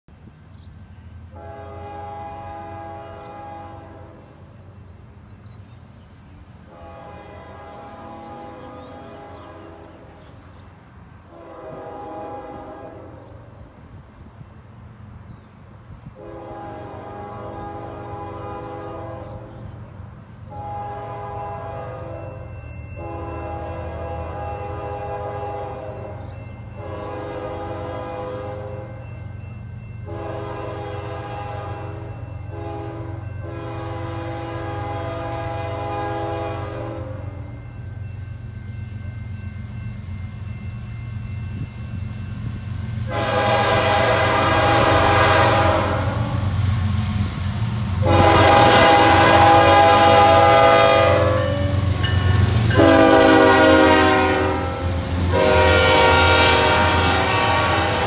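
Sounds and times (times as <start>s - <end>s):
locomotive air horn blasts: 1.3s - 4.4s, 6.7s - 10.2s, 11.3s - 13.3s, 16.0s - 19.7s, 20.5s - 22.4s, 23.0s - 26.2s, 26.8s - 29.0s, 30.0s - 37.6s, 43.0s - 46.5s, 48.0s - 58.0s.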